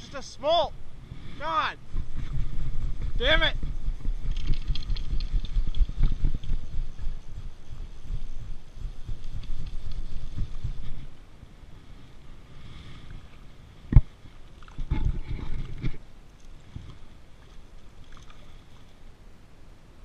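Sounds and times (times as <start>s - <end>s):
splashing and handling noise: 4.0s - 6.7s, 13.9s - 19.0s.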